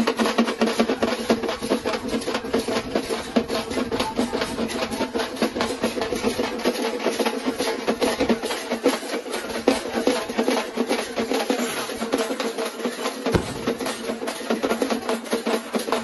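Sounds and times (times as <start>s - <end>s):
procession drums playing fast: 0.0s - 16.0s.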